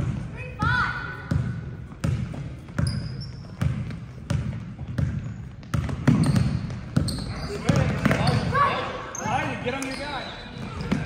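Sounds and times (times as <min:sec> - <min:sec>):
basketball bouncing on hardwood: 0:01.3 - 0:03.0, 0:03.6 - 0:08.3.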